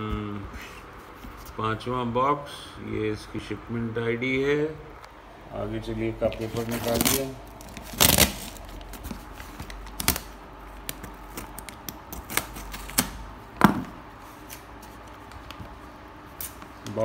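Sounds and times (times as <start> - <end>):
paper and packing tape rustling: 6.2 - 13.2, 14.3 - 17.0.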